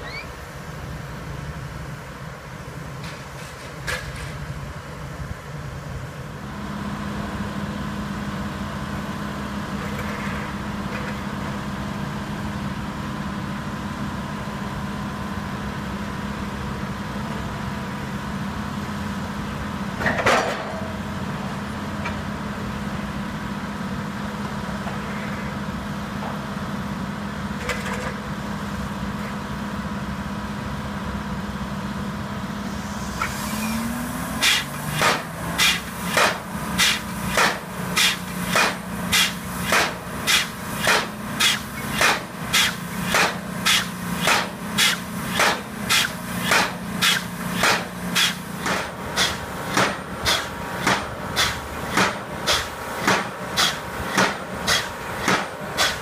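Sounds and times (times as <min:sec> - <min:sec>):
crane engine running: 0:00.0 - 0:56.0
pile hammer blows: 0:34.4 - 0:56.0.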